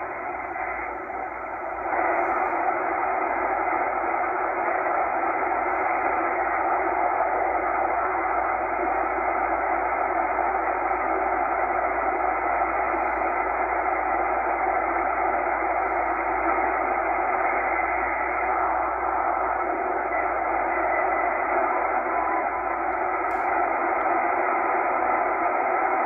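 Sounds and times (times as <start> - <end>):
faint steady tones: 0.0 - 26.0
radio static hiss: 0.0 - 26.0.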